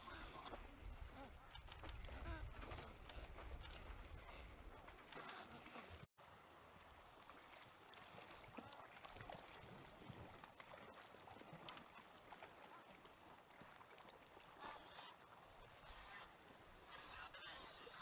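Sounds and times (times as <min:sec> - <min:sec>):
sea water lapping: 0:00.0 - 0:18.0
distant penguin calls: 0:15.8 - 0:18.0.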